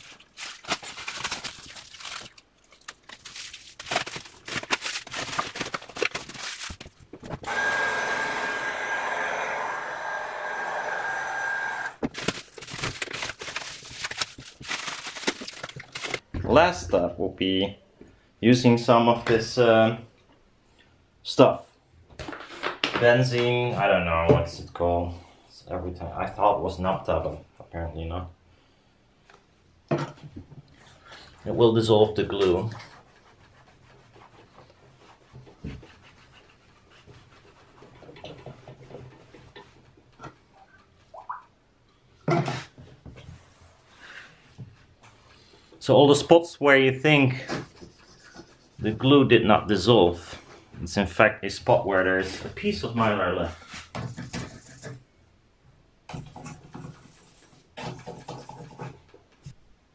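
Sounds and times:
heat gun blowing with whine: 0:07.4 - 0:12.0.

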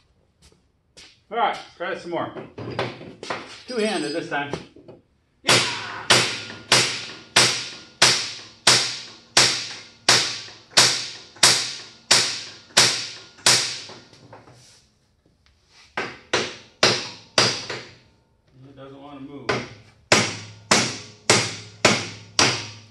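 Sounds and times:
hammer striking steel: 0:05.5 - 0:14.1, 0:16.0 - 0:18.0, 0:19.5 - 0:22.9.

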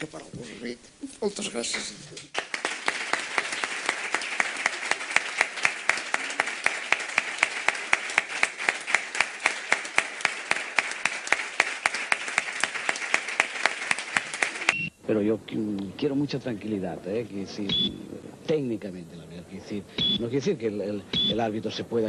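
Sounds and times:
audience applauding: 0:01.6 - 0:14.9.

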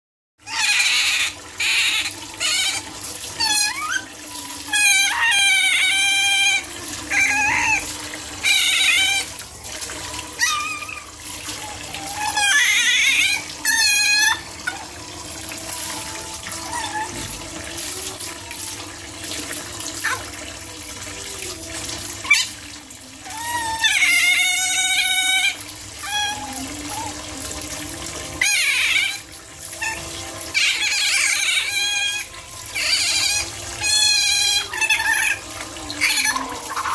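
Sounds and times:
otters squealing: 0:00.4 - 0:18.8, 0:28.4 - 0:36.9
running tap: 0:00.4 - 0:36.9.

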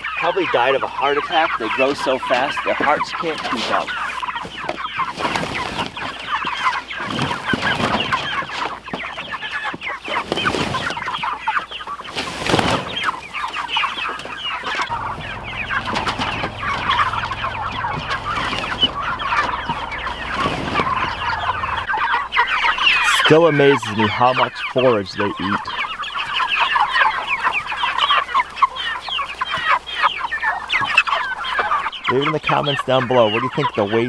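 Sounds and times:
chickens clucking and chattering: 0:00.0 - 0:34.0
brief loud noise: 0:14.9 - 0:21.9.

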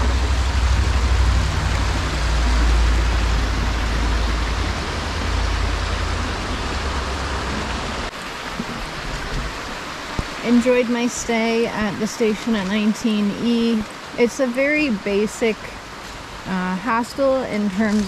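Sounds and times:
low rumble: 0:00.0 - 0:09.6
creek running over rocks: 0:00.0 - 0:18.0.

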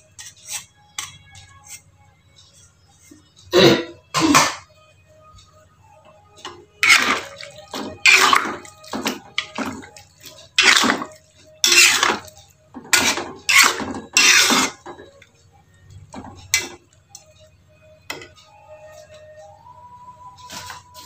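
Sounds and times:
metal spatula scraping a wok: 0:00.1 - 0:01.8, 0:06.8 - 0:15.2, 0:16.4 - 0:16.8.

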